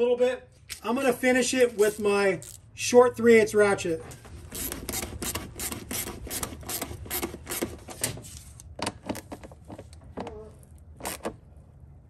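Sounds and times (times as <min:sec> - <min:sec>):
hand ratchet clicking: 0:04.5 - 0:07.7.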